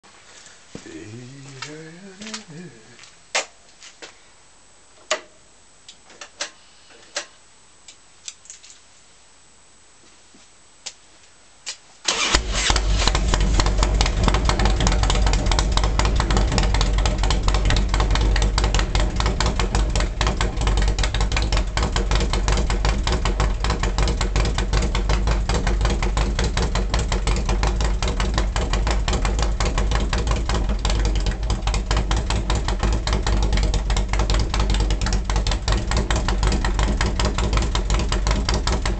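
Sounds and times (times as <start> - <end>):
motorcycle engine running: 12.2 - 38.9.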